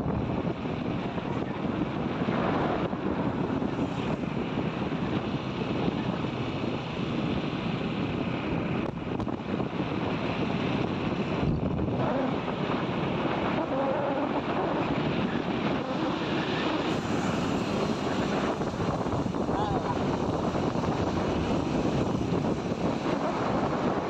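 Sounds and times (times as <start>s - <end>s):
wind rushing over microphone: 0.0s - 24.0s.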